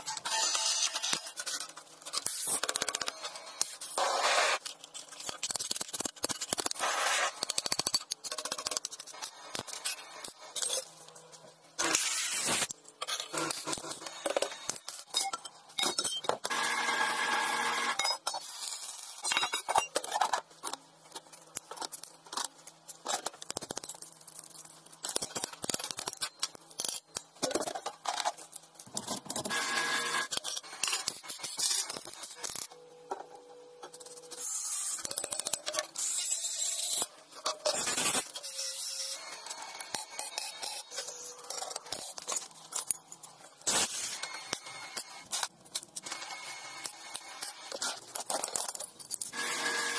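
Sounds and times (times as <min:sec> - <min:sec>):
steel parts clinking and scraping: 0:04.6 - 0:16.4, 0:18.0 - 0:29.6, 0:33.8 - 0:49.4.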